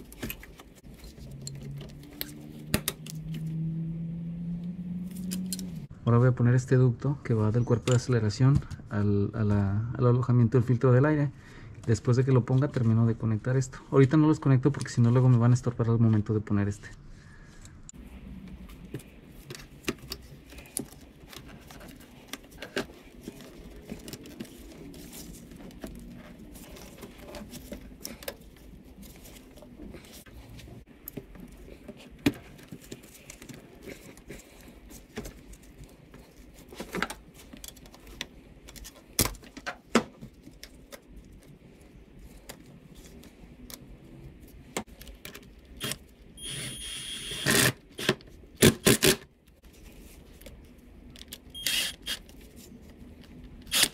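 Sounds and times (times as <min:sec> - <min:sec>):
cordless power tool whining: 0:46.4 - 0:47.8, 0:51.6 - 0:52.2.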